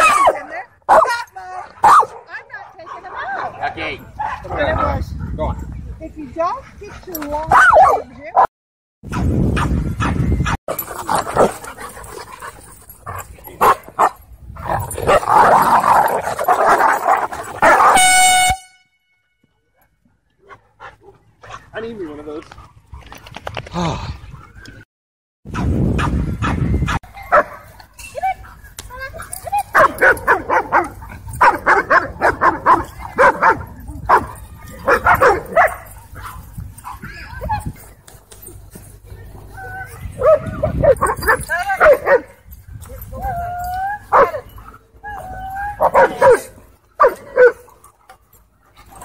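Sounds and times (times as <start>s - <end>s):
dogs growling and barking: 9.1s - 18.0s, 29.2s - 37.9s, 39.4s - 42.4s, 43.2s - 49.0s
horn-like steady tone: 17.8s - 19.6s.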